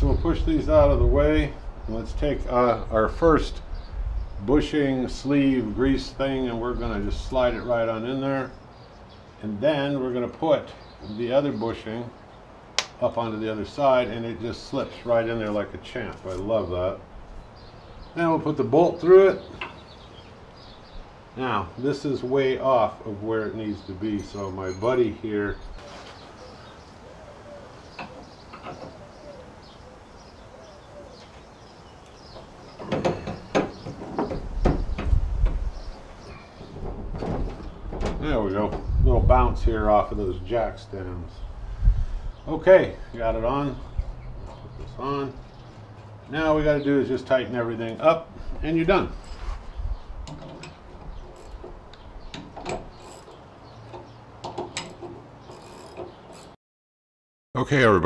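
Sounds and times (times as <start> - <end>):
birds calling faintly: 0.0 - 56.6
metal clanks and knocks: 32.3 - 35.6, 36.4 - 38.9, 50.2 - 56.5.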